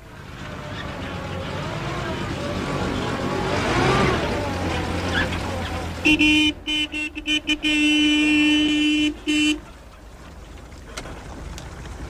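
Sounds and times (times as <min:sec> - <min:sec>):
car horn honking: 0:06.0 - 0:09.8.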